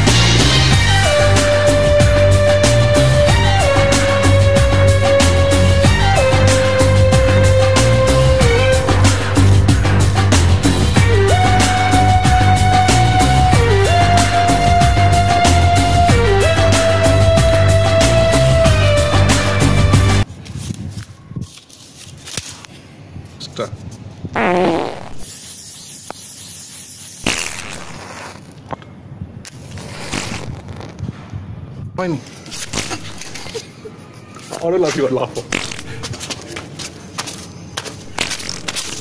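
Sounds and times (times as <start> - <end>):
electronic music with held lead note: 0.0 - 20.2
aerosol spray can hissing: 24.4 - 28.5
matchbox clicks and scrapes: 29.4 - 31.0, 32.5 - 33.6, 35.5 - 35.9, 38.1 - 39.0.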